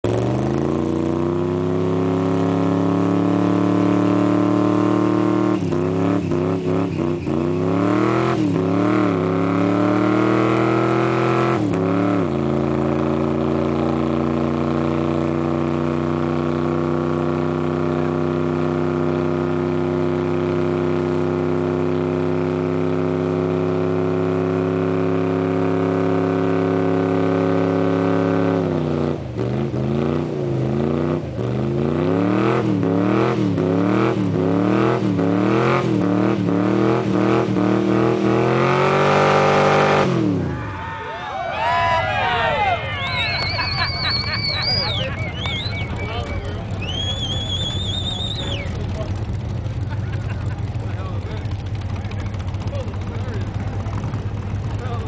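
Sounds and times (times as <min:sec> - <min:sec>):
engine revving at high revs: 0:00.0 - 0:40.5
tyres spinning in a burnout: 0:36.0 - 0:55.0.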